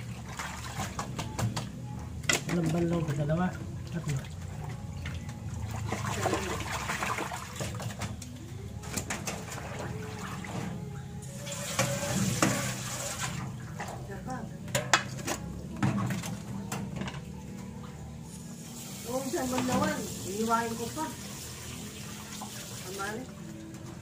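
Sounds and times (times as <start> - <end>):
tap water running: 9.4 - 14.1, 18.3 - 24.0
dishes clinking in metal sink: 14.6 - 17.3.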